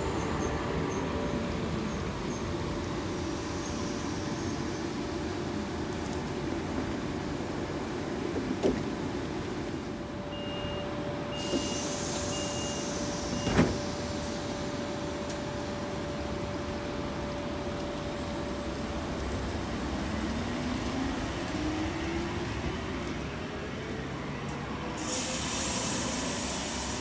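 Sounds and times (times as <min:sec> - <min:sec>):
train electrical hum: 0:00.0 - 0:27.0
train doors thumping shut: 0:08.3 - 0:09.0, 0:11.4 - 0:14.1
train whine moving off: 0:10.2 - 0:17.2, 0:18.2 - 0:27.0
door-warning beeps: 0:10.3 - 0:13.8.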